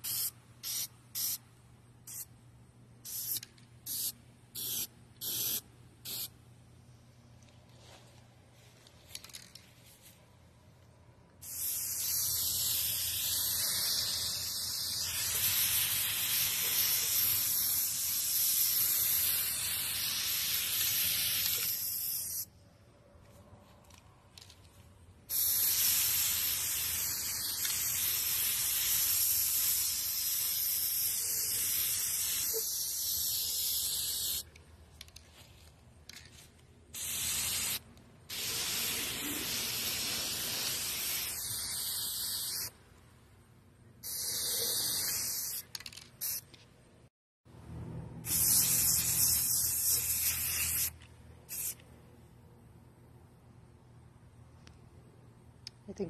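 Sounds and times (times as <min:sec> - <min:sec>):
spray paint can spraying: 0:00.0 - 0:01.4, 0:02.0 - 0:02.3, 0:03.0 - 0:06.3, 0:11.4 - 0:22.5, 0:25.3 - 0:42.7, 0:44.0 - 0:46.6, 0:48.2 - 0:51.8.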